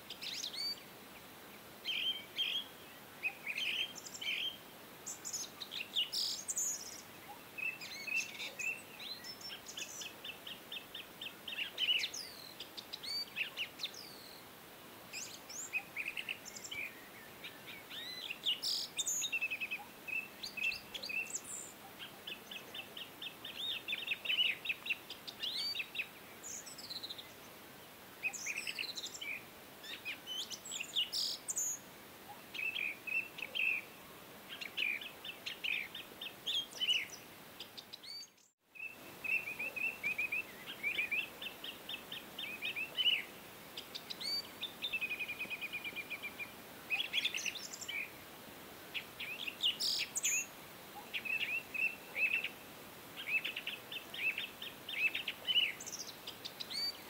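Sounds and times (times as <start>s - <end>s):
birds chirping and trilling: 28.2s - 48.2s, 53.2s - 57.0s.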